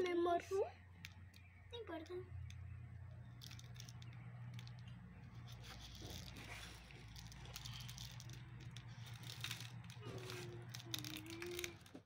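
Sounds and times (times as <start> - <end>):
low hum: 0.1 - 12.0
sprinkles rustling: 3.3 - 12.0.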